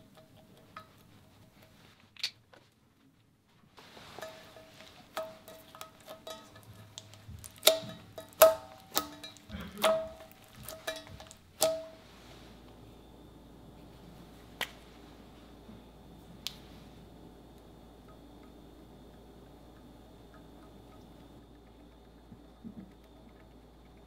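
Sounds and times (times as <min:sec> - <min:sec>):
slime popping and clicking: 0:07.0 - 0:11.9.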